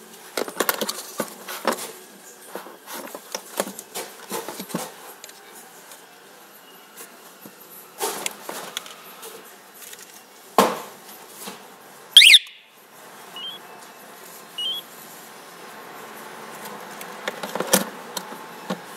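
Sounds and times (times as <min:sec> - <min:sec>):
short rising beeps: 0:12.2 - 0:12.6, 0:14.6 - 0:14.8
alarm siren chirp: 0:12.2 - 0:12.7, 0:13.4 - 0:13.6, 0:14.6 - 0:14.8.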